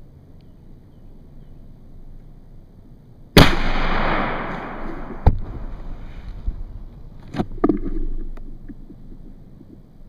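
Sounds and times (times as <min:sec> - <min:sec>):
shotgun shot: 0:03.4 - 0:06.0.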